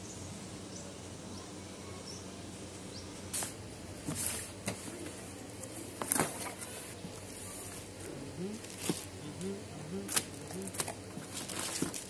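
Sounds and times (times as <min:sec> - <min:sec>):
packaging rustling: 0:10.1 - 0:12.0.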